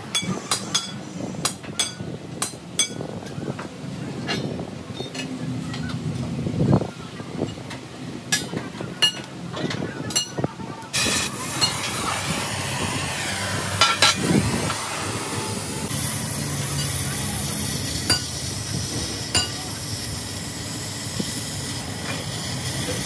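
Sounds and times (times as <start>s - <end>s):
steady metalworking hiss: 0.0s - 3.0s, 10.2s - 23.0s.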